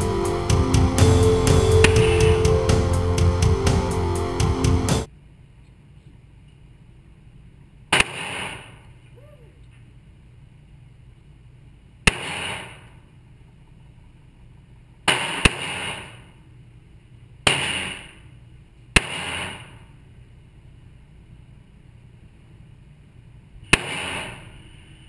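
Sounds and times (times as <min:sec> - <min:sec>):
pistol shots echoing indoors: 0:23.7 - 0:24.6.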